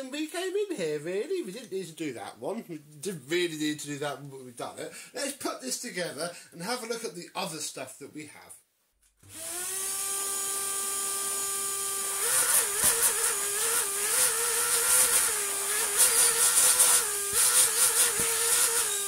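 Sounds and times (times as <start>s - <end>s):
electric screwdriver whining: 9.2s - 19.0s.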